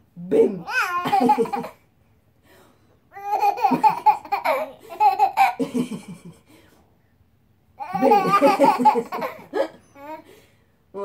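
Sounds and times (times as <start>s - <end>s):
baby laughing: 0.6s - 1.8s, 3.2s - 6.2s, 7.8s - 10.2s.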